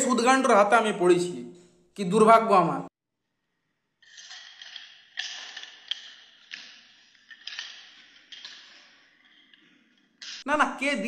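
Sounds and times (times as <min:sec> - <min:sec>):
nunchaku swishing and rattling: 0:04.0 - 0:10.5.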